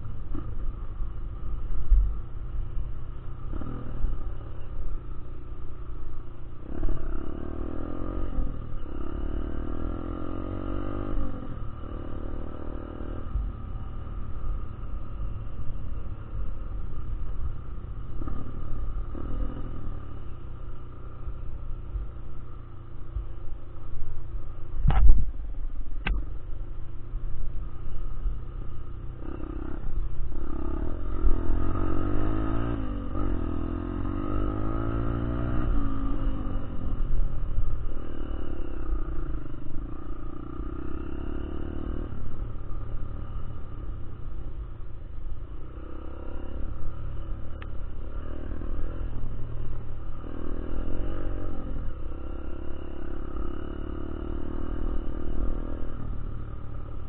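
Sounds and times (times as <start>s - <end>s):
motorcycle engine revving: 2.8s - 23.8s, 27.6s - 57.0s
wind rumble on microphone: 23.8s - 40.6s
sharp thump: 24.8s - 25.3s.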